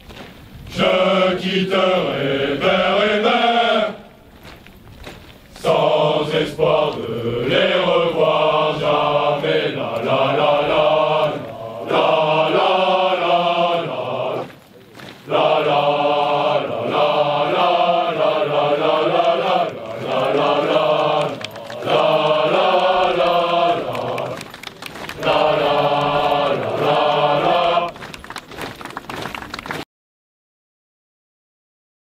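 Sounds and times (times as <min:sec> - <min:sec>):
men singing in unison: 0:00.7 - 0:04.1, 0:05.6 - 0:14.6, 0:15.3 - 0:24.5, 0:25.2 - 0:28.1.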